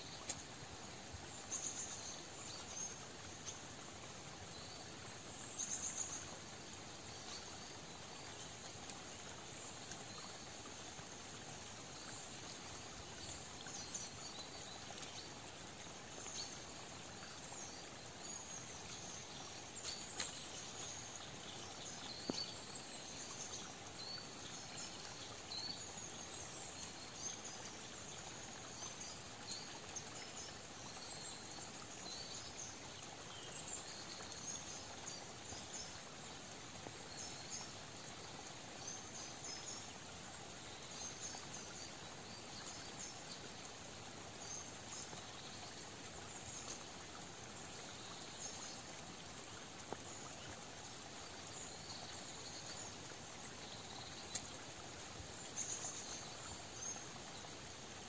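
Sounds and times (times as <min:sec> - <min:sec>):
soft forest hiss: 0:00.0 - 0:58.0
faint tick: 0:00.2 - 0:00.5, 0:19.8 - 0:20.9, 0:22.0 - 0:22.6, 0:54.2 - 0:54.6.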